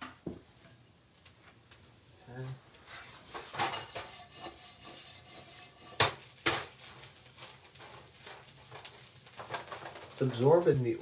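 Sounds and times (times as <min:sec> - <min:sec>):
spoon scraping frying pan: 0:02.8 - 0:10.2.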